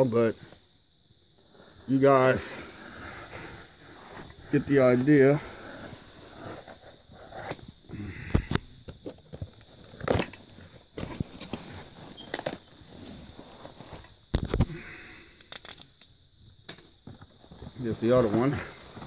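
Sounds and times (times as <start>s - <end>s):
cardboard tearing and scraping: 2.2s - 7.6s, 9.8s - 14.0s, 17.8s - 19.0s.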